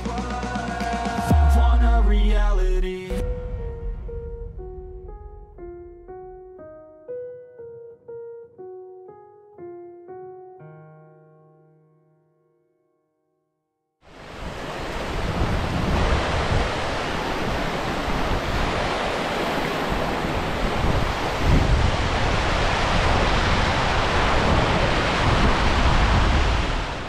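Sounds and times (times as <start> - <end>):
wind rumbling on microphone: 14.1 - 27.0.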